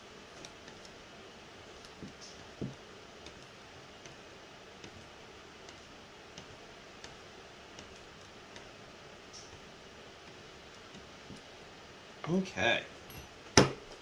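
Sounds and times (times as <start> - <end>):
knock: 13.6 - 13.8.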